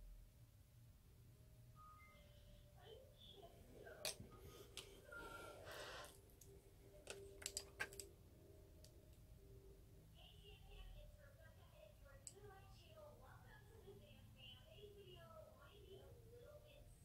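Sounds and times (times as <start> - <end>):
makeup containers clicking: 7.1 - 8.1.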